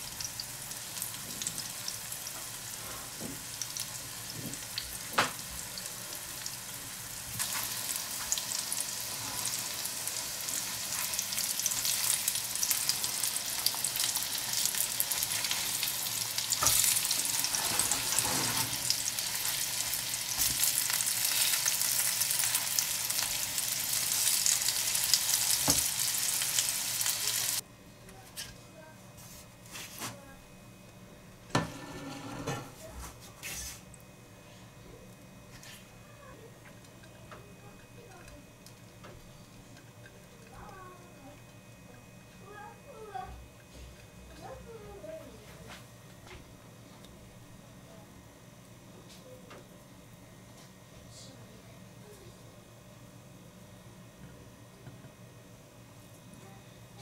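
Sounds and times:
patties sizzling in oil: 0.0s - 27.6s.

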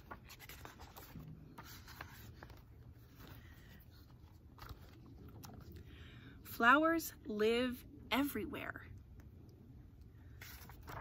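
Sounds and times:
paper pages rustling: 0.0s - 5.9s, 10.3s - 11.0s.

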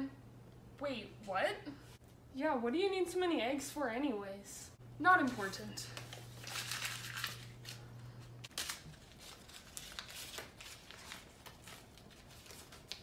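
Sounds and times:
low steady hum: 0.0s - 9.8s
paper crinkling and rustling: 5.2s - 13.0s.

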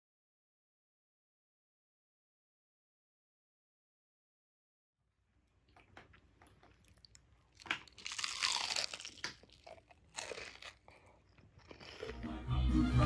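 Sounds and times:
crunching fried breading: 5.9s - 12.2s.

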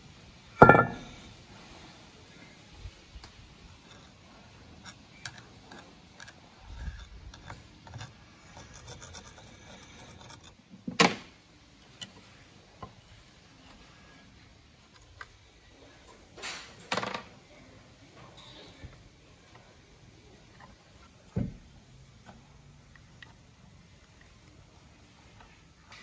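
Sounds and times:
screwdriver scraping and tapping metal: 4.8s - 10.6s.

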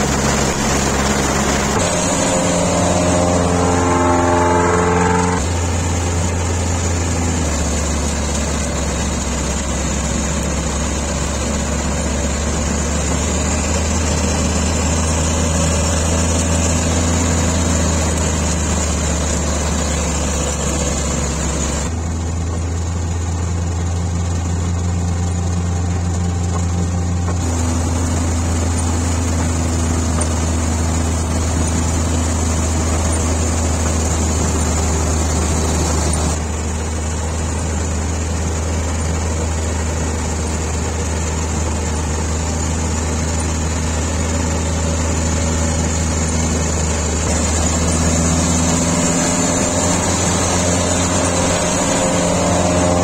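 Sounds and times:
short run of pitched notes: 0.0s - 7.8s
combine harvester running: 0.0s - 53.0s.

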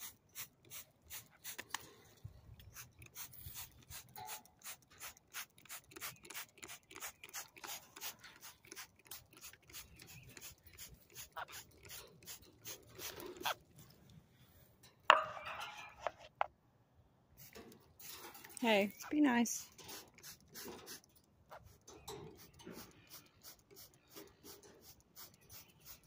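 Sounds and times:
trigger spray bottle spraying: 0.0s - 1.8s, 2.7s - 13.6s, 19.6s - 21.1s.

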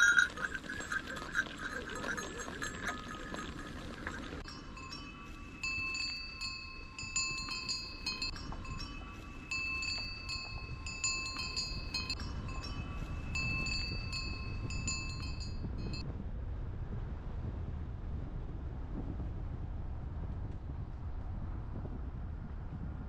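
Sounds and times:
high bell-like chime: 0.0s - 3.6s, 4.4s - 16.0s
low rumble of moving vehicle: 0.0s - 23.0s.

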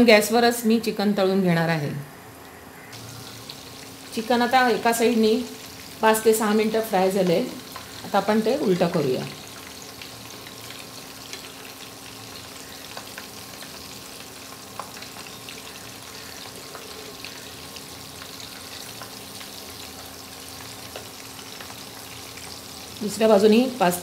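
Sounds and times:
chicken sizzling in oil: 2.9s - 24.0s.

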